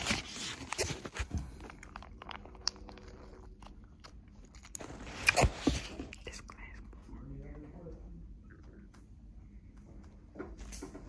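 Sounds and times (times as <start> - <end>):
chips crunching: 0.0 - 6.8.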